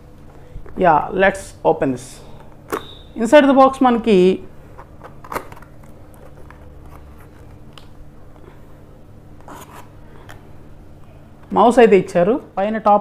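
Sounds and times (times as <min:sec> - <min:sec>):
cardboard rubbing and scraping: 0:09.4 - 0:09.9.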